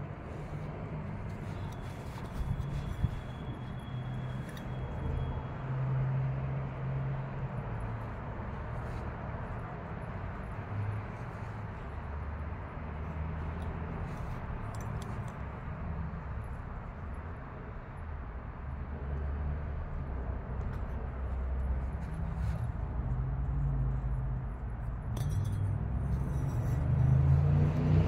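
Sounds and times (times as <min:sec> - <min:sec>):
vehicle engine rumble: 0:00.0 - 0:28.0
faint metallic clinks: 0:25.1 - 0:27.3.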